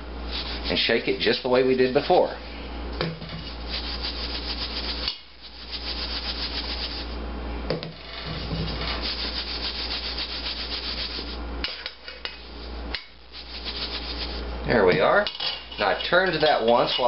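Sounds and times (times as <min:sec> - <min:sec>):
meat swishing in flour in bowl: 0:00.2 - 0:02.2, 0:03.4 - 0:07.2, 0:08.3 - 0:11.4, 0:13.3 - 0:14.5.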